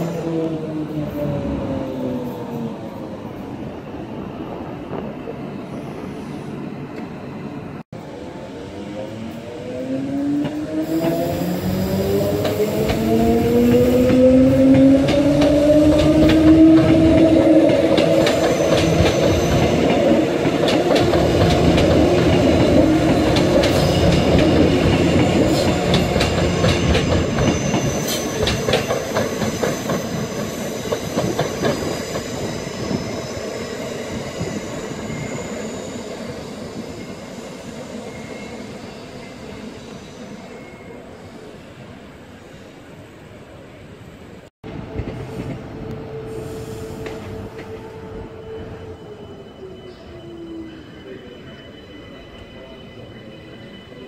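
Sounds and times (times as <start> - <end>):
train wheels clattering: 12.3 - 32.9
high wheel squeal: 18.1 - 20.3, 21.7 - 41.8, 46.1 - 54.0.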